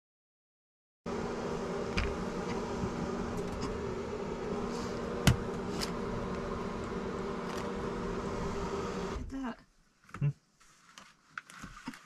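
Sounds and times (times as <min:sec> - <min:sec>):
fan humming: 0:01.1 - 0:09.5.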